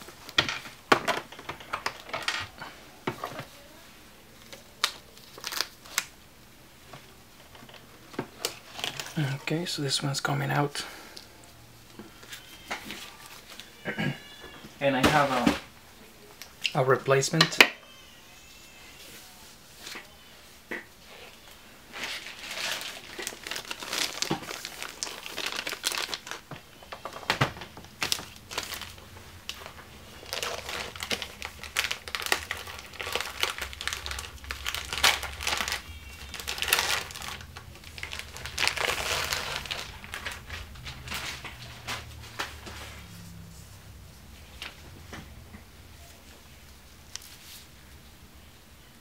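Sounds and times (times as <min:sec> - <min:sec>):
plastic packaging crinkling: 0:04.4 - 0:06.1, 0:07.6 - 0:09.5, 0:21.2 - 0:42.8.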